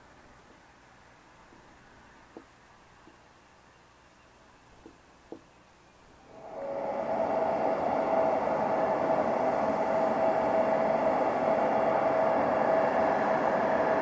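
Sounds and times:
jet engines running: 6.3 - 14.0.

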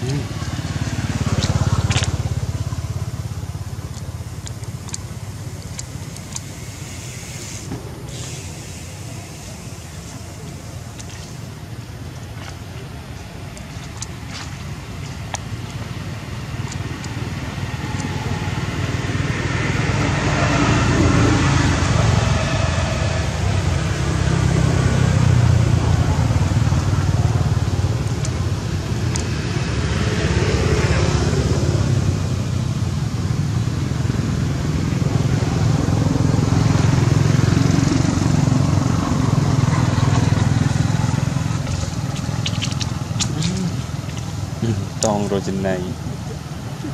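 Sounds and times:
traffic engine rumble: 0.0 - 46.9
vehicles passing: 0.0 - 46.9.

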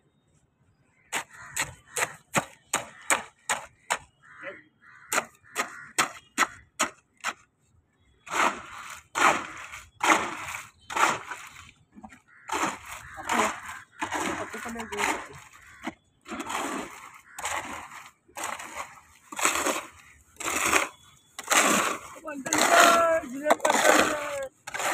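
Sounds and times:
hoe scraping concrete mix: 1.1 - 4.1, 8.2 - 24.9
hoe chopping wet concrete mix: 1.1 - 4.2, 5.1 - 7.5, 8.2 - 24.9.

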